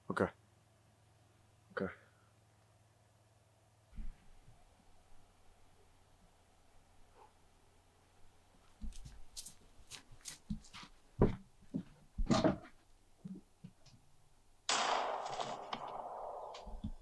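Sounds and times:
footsteps crunching through snow: 0:08.8 - 0:11.4.

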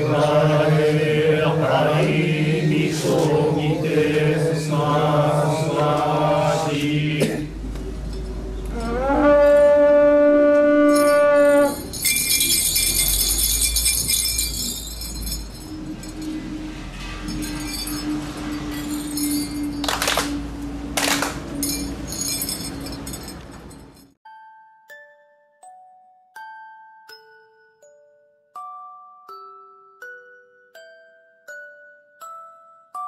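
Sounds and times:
group chanting in unison: 0:00.0 - 0:07.6
conch-shell trumpet blast: 0:08.7 - 0:11.9
high metallic jingling: 0:10.8 - 0:24.2
low drone: 0:14.4 - 0:22.7.

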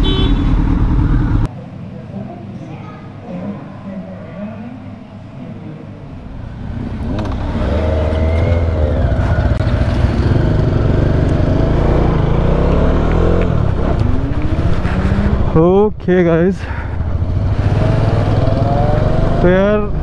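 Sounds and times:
motorcycle engine accelerating: 0:00.0 - 0:01.5, 0:06.6 - 0:15.6, 0:16.9 - 0:20.0.

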